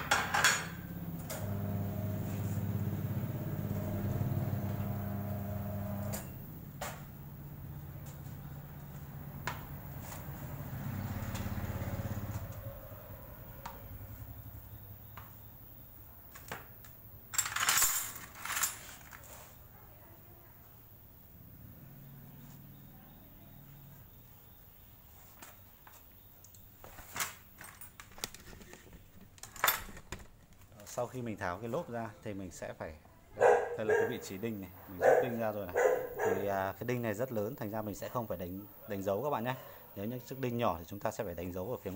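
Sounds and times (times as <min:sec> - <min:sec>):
low motor hum: 0:00.9 - 0:15.2.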